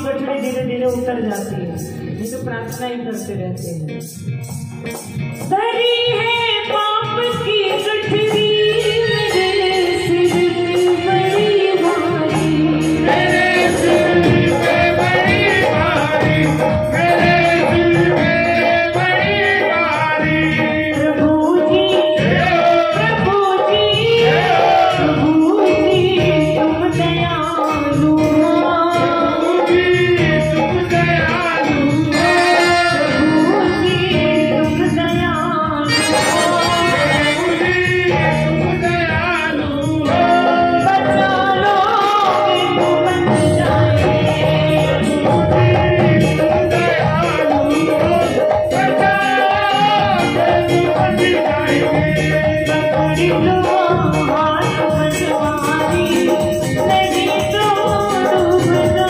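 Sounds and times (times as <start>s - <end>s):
woman singing into microphone: 0.0s - 4.1s, 5.4s - 59.0s
hand drum beating: 4.4s - 59.0s.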